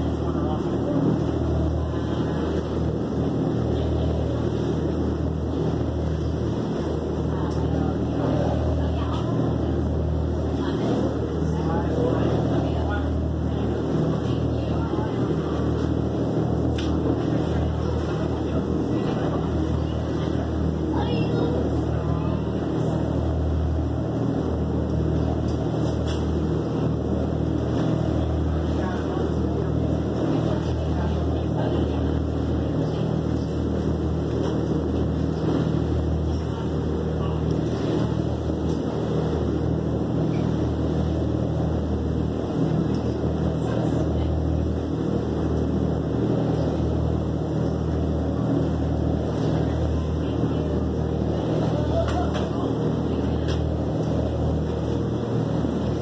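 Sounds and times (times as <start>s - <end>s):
boat engine droning: 0.0s - 56.0s
water rushing along hull: 0.0s - 56.0s.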